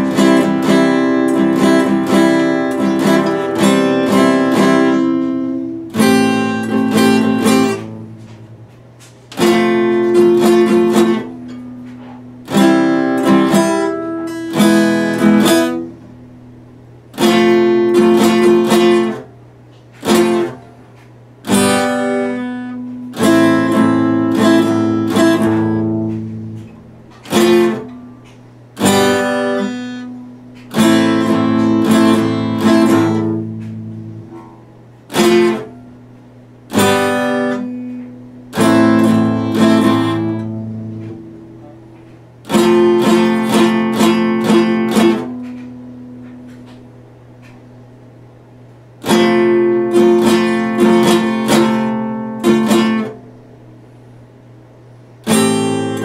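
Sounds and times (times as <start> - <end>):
acoustic guitar strummed: 0.0 - 56.0.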